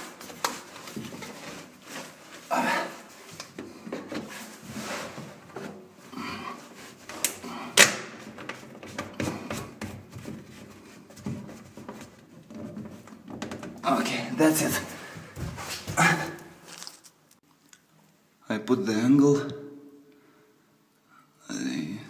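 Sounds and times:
plastic pipes rubbing and knocking: 0.0 - 2.5, 3.2 - 6.0, 6.6 - 13.8.

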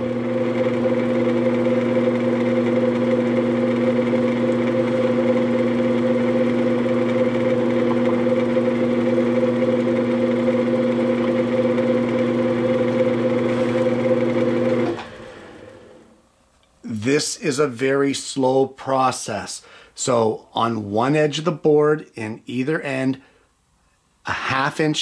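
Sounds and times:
drill press humming: 0.0 - 16.3.

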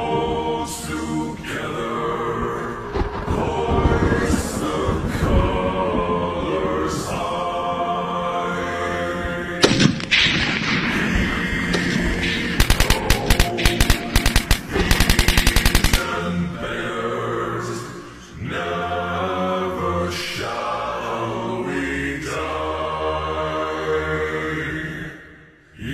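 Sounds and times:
choral chanting music: 0.0 - 25.9
sharp cracks: 9.6 - 16.4
automatic gunfire bursts: 12.4 - 16.2.

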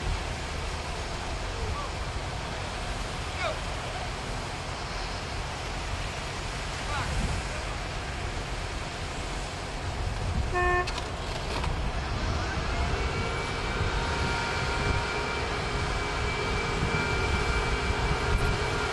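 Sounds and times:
heavy machinery rumbling: 9.6 - 18.9
short horn toot: 10.5 - 11.0
machine whine: 10.9 - 18.9.

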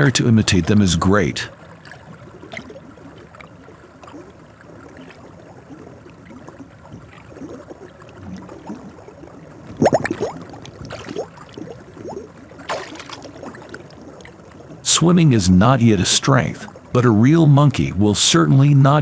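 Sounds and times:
water sloshing and splashing: 0.0 - 19.0.

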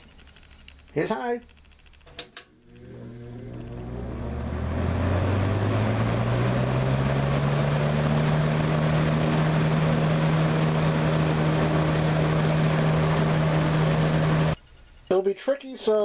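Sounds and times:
box fan running: 1.8 - 14.6.

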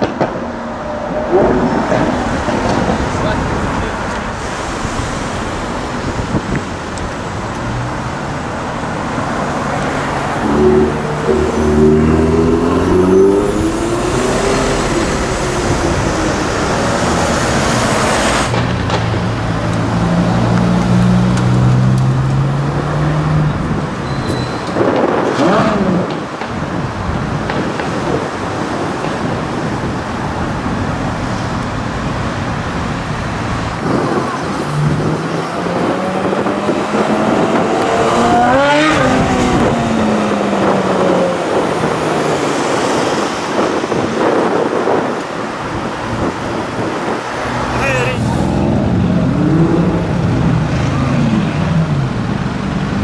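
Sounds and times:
car engine revving: 0.0 - 24.0, 30.6 - 53.0
city road traffic: 0.0 - 53.0
sports car driving past: 8.8 - 23.8, 33.4 - 43.9.

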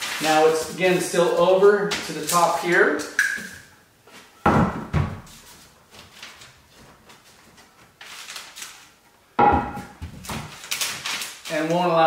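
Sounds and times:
wooden board knocking: 9.4 - 10.2.

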